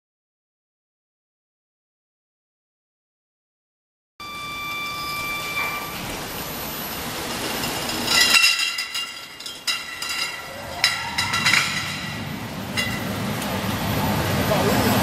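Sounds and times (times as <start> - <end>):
brief rising whine: 4.2 - 8.2
conveyor machine running: 4.2 - 15.0
glass bottles clinking: 7.2 - 13.3.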